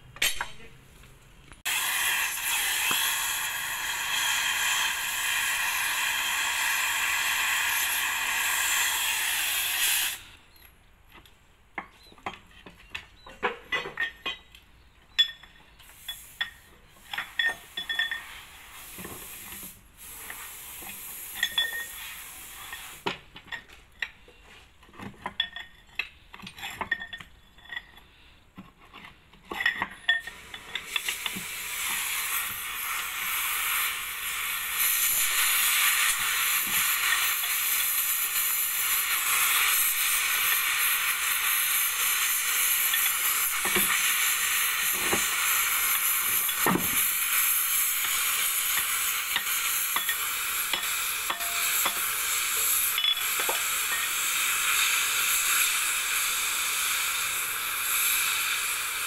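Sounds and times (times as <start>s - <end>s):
cutting torch hissing: 1.6s - 10.5s, 15.8s - 23.1s, 30.3s - 59.0s
steel bar clinking on metal: 13.7s - 18.3s, 21.3s - 22.0s, 25.2s - 28.1s, 48.0s - 54.4s.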